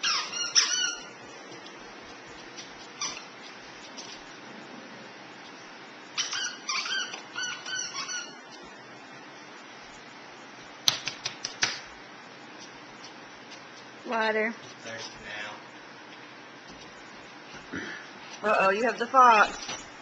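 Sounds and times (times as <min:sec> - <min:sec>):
dog toy squeaking: 0:00.0 - 0:01.1, 0:03.0 - 0:03.3, 0:06.2 - 0:08.4.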